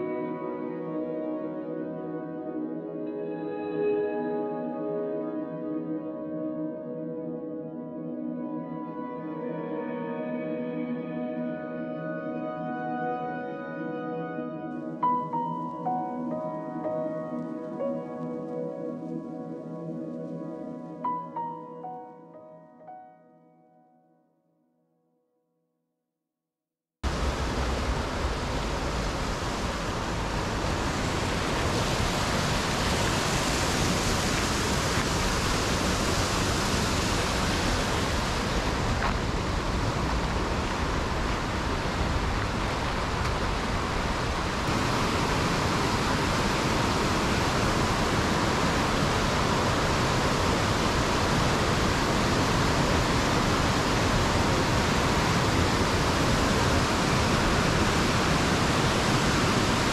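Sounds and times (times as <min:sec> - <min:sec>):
rushing water roar: 0:27.0 - 0:59.9.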